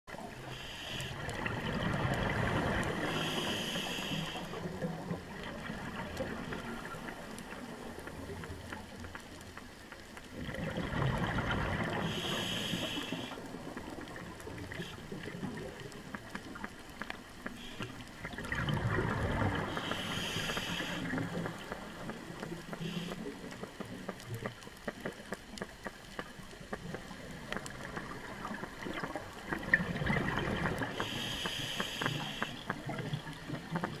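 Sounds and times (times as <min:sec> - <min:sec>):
faint steady crackling: 0:00.1 - 0:34.0
gurgling exhaled bubbles: 0:01.1 - 0:03.9, 0:04.5 - 0:08.8, 0:10.3 - 0:16.6, 0:18.2 - 0:23.4, 0:26.8 - 0:34.0
short high hiss: 0:19.8 - 0:21.0.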